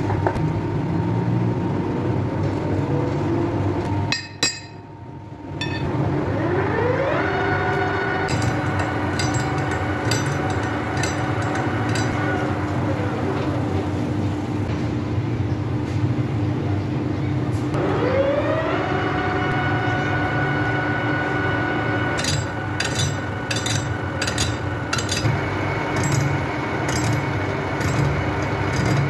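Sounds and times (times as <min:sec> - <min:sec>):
lathe motor whine: 0:05.9 - 0:14.7, 0:17.8 - 0:29.0
boring bar scraping steel: 0:08.3 - 0:12.9, 0:22.1 - 0:29.0.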